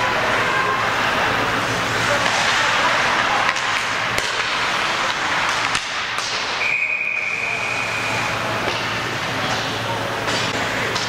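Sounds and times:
ice hockey rink noise: 0.0 - 11.0
referee's whistle: 6.6 - 8.3.

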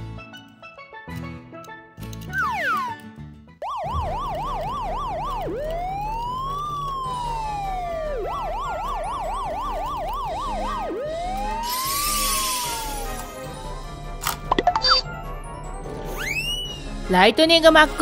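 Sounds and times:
police siren yelp and wail: 3.6 - 13.7.

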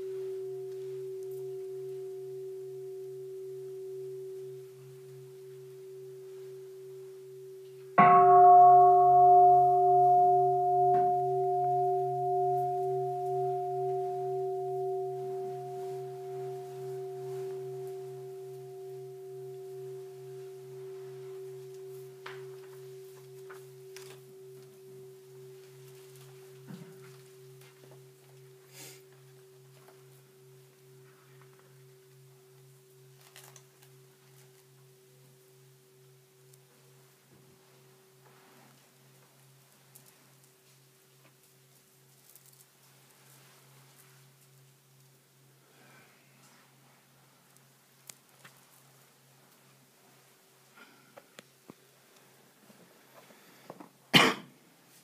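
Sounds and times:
bowl bell ringing: 0.0 - 42.1
faint clicks and rustles: 19.6 - 34.9.

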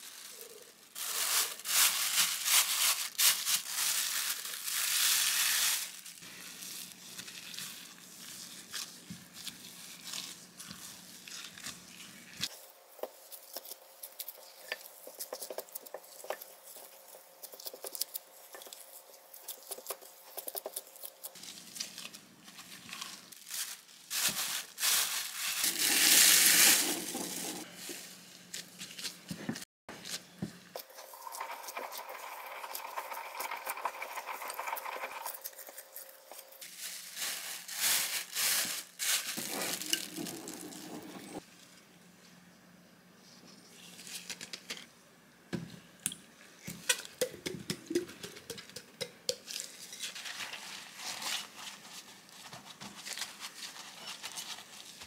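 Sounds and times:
plastic bag crinkling: 0.0 - 11.9, 21.4 - 28.2, 30.8 - 41.4.

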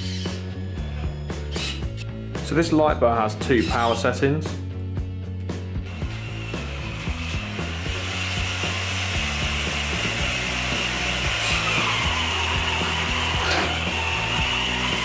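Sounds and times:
electric motor whining: 5.8 - 15.0.

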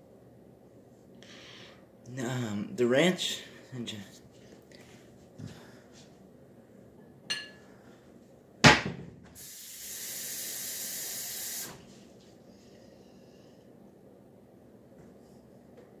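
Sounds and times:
faucet running: 9.4 - 11.8.

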